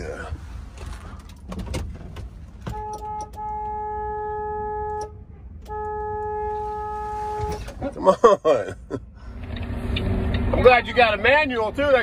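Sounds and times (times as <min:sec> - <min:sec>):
truck horn blasts: 0:02.7 - 0:07.7.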